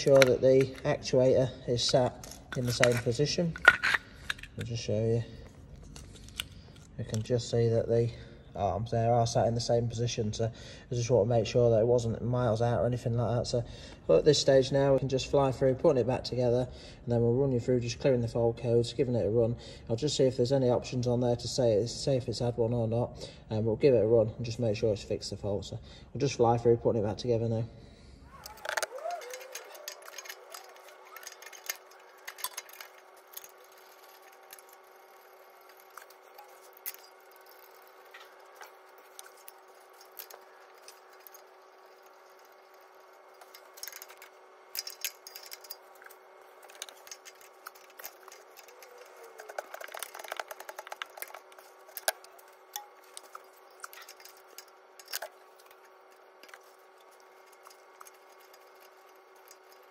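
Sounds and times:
faint steady hum: 0.0s - 59.9s
small metallic clicks and clinks: 28.3s - 59.9s.

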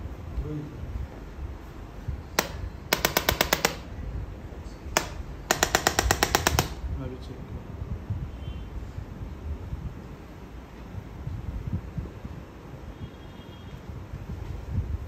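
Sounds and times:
rapid clicking pulses: 2.4s - 4.0s, 5.0s - 6.9s.

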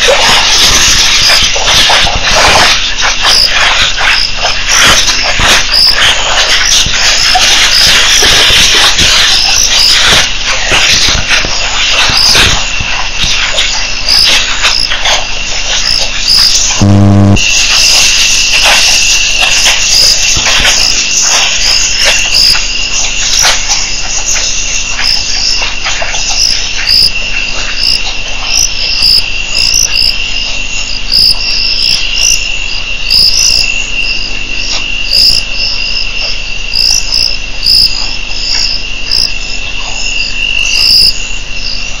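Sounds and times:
insect short chirps: 5.7s - 6.0s, 15.8s - 17.5s, 19.9s - 20.2s, 21.7s - 22.6s, 26.3s - 27.2s, 27.8s - 30.2s, 30.8s - 32.5s, 33.1s - 33.8s, 35.0s - 36.0s, 36.7s - 39.3s, 40.2s - 41.2s
insect steady high trill: 15.8s - 17.5s, 21.7s - 22.8s, 26.4s - 27.2s, 27.8s - 34.3s, 34.9s - 39.4s, 40.2s - 41.3s.

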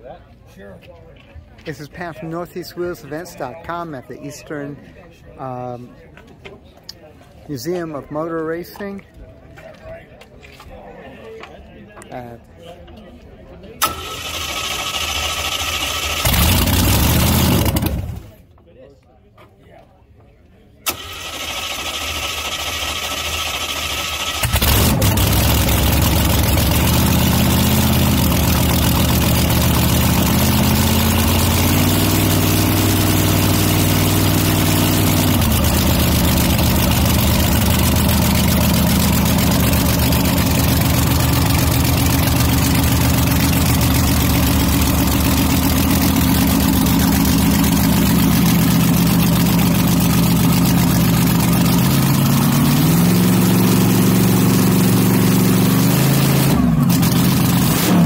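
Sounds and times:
drag car engine idling and revving: 13.8s - 18.5s, 20.9s - 58.0s.

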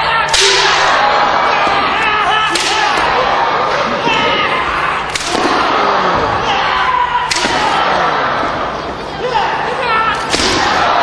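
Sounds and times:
voices shouting: 0.0s - 11.0s
sharp strike cracks: 2.5s - 3.0s, 5.1s - 5.8s, 10.3s - 10.9s.

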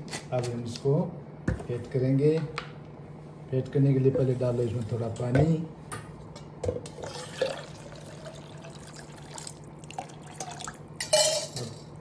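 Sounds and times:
water poured into steel jar: 7.0s - 10.8s.

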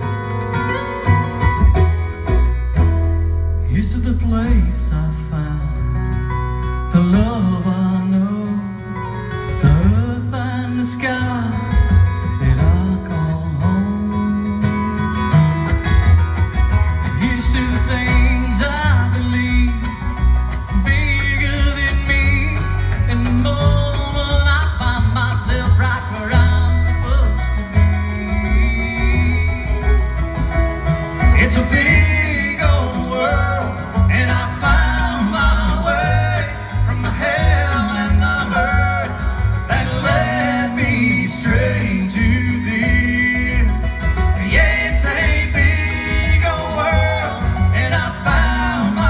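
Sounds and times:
bluegrass band playing: 0.0s - 49.0s.

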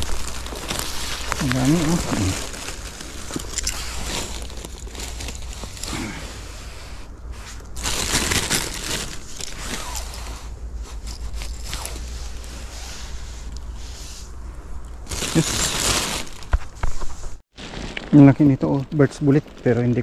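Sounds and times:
plastic bag crinkling: 0.0s - 5.9s, 7.7s - 10.2s, 15.1s - 16.6s, 17.5s - 18.5s.

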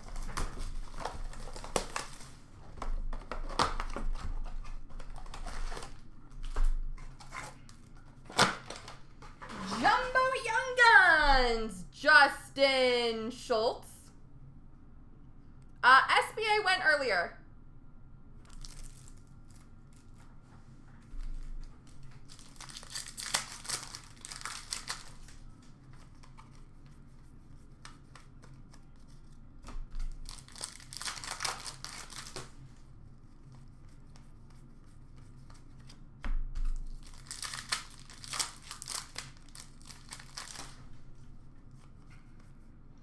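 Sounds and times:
plastic wrappers torn and crinkled: 0.0s - 2.4s, 18.4s - 20.2s, 21.2s - 25.4s, 29.9s - 32.6s, 36.6s - 41.0s
cards being handled: 21.0s - 32.6s.

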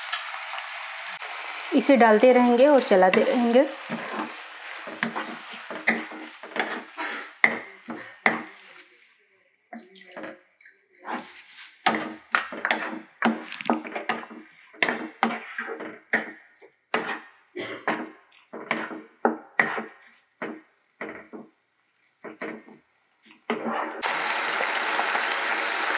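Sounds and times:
light sizzle: 0.0s - 7.5s, 24.0s - 25.9s
wooden spatula scraping wok: 0.0s - 8.9s, 11.0s - 16.3s, 16.9s - 21.4s.

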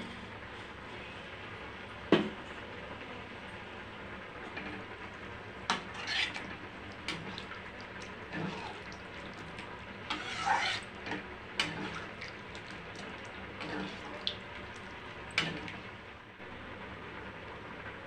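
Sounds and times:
curry simmering hiss: 4.9s - 16.1s.

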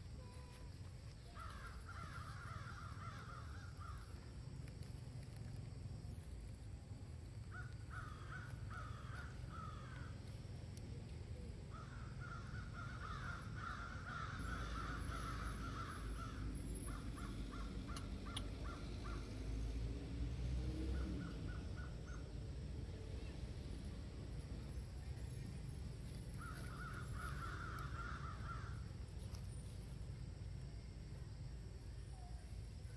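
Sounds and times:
crows cawing: 1.4s - 4.1s, 7.5s - 10.1s, 11.7s - 19.2s, 26.4s - 28.9s.

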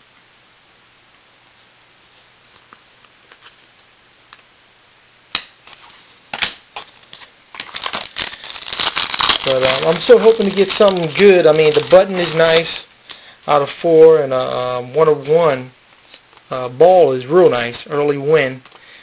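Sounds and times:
packaging crinkling and rustling: 2.4s - 3.9s, 5.6s - 12.9s.

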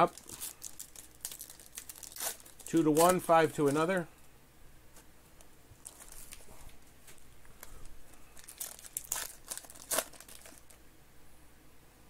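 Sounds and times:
foil wrapper tearing and crinkling: 0.0s - 4.0s, 5.8s - 6.5s, 8.4s - 10.8s.

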